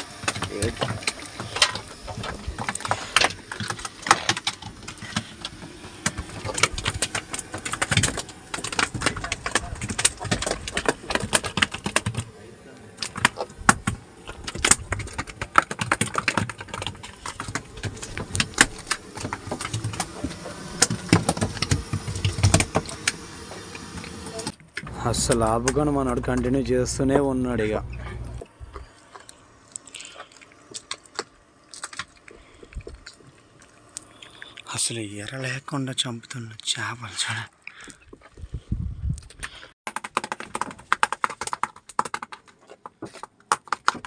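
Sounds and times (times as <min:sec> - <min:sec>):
fish flapping on deck: 0:00.0 - 0:12.3, 0:13.0 - 0:24.5.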